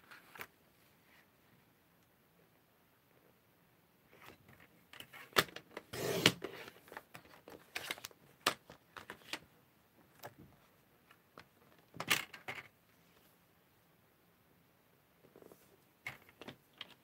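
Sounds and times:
card scraping and being cut: 5.9s - 6.7s.

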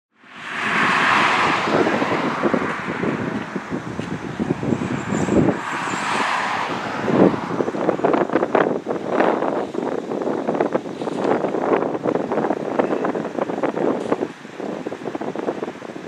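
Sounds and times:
cars passing on busy road: 0.1s - 16.0s.

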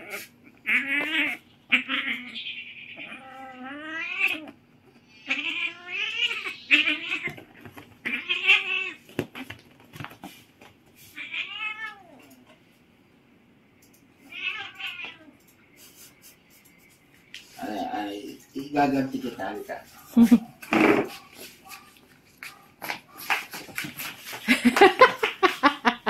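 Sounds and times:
cats yowling: 0.0s - 9.1s, 11.1s - 12.4s, 14.2s - 15.4s.

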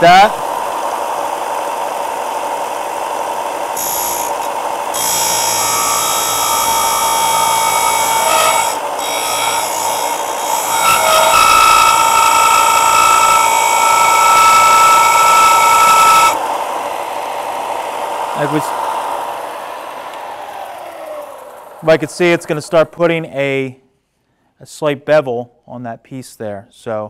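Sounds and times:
sander motor hum: 0.0s - 22.8s
steel grinding on abrasive: 3.7s - 17.6s.

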